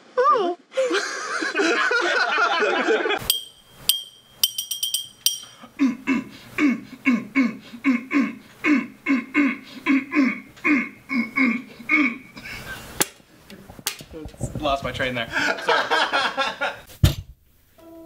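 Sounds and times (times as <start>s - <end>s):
metal clinking against glass bottle: 3.2s - 5.6s.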